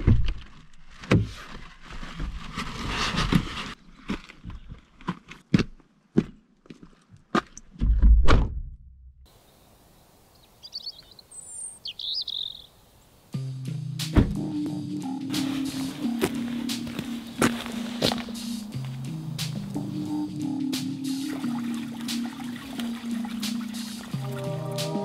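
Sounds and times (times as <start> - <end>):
bird chirps: 9.4 - 13.3
car door thump: 14.1 - 14.4.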